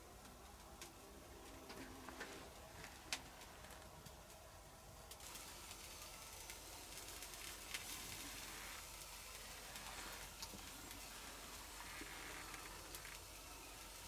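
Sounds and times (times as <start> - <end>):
food sizzling on a grill: 5.1 - 14.0.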